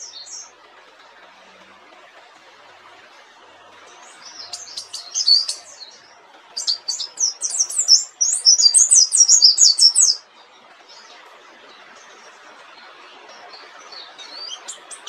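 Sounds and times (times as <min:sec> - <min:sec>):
bird twittering song: 0:00.0 - 0:00.5, 0:03.8 - 0:10.2, 0:10.9 - 0:15.0.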